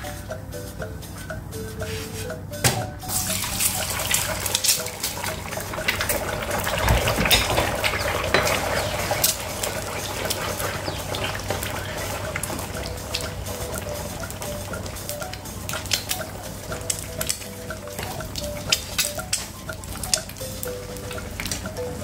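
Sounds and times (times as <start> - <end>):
wooden spoon stirring in pan: 3.1 - 14.2
eggs sizzling in hot oil: 3.1 - 22.0.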